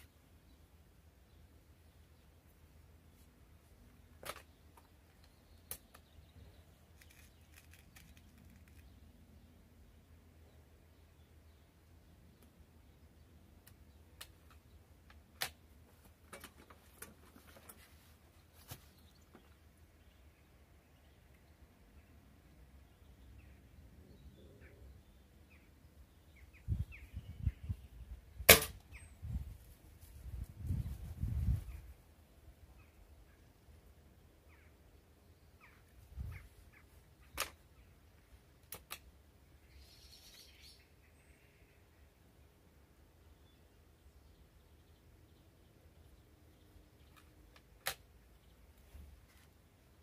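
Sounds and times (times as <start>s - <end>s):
air rifle shot: 28.5s - 28.8s
faint bird chirps: 34.4s - 38.0s, 39.6s - 42.1s
air rifle clicks: 47.1s - 48.1s.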